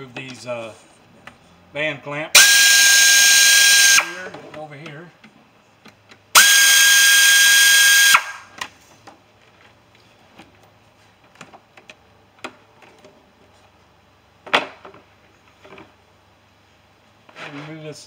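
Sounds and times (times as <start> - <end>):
pneumatic air tool whining: 2.4 - 4.3, 6.3 - 8.6.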